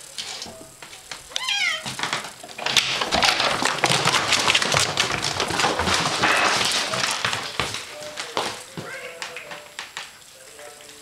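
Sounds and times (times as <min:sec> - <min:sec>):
cat paws scrabbling on wood floor: 0:00.2 - 0:11.0.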